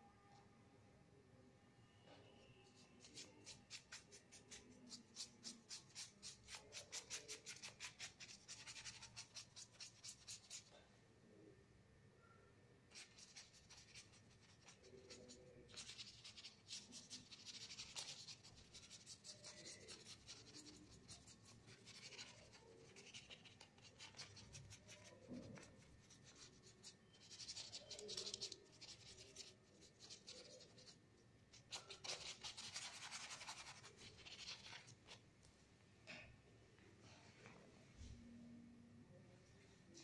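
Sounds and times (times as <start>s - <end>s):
paintbrush strokes on paper: 12.9s - 35.2s.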